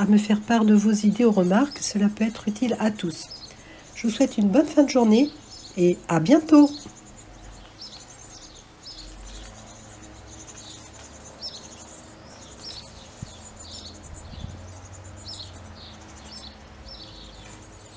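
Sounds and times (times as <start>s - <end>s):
songbirds chirping: 0.0s - 17.9s.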